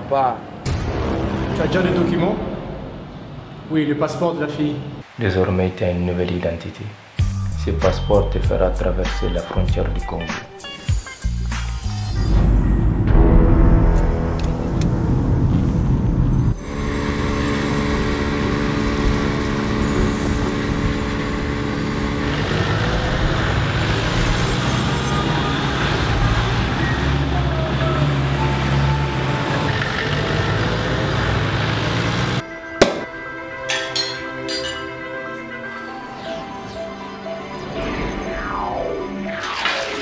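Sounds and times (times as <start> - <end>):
airliner cabin drone: 14.0 - 25.4
street traffic noise: 16.0 - 33.0
glass clinking: 33.7 - 34.9.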